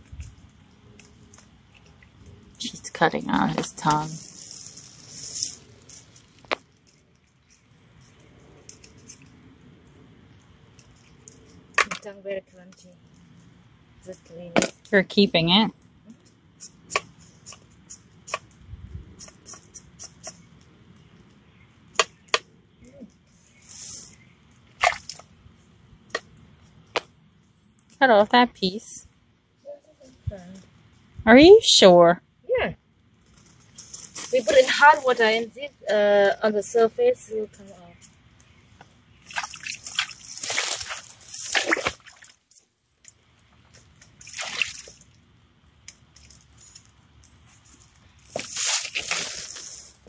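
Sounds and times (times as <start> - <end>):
water splashing and pouring: 39.3 - 42.4, 44.2 - 45.0.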